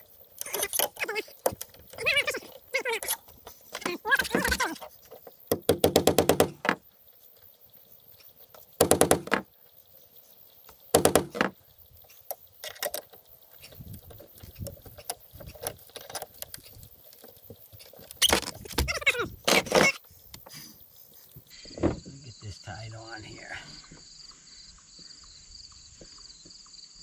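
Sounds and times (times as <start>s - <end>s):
soft clicks and scraping: 12.0s - 18.8s.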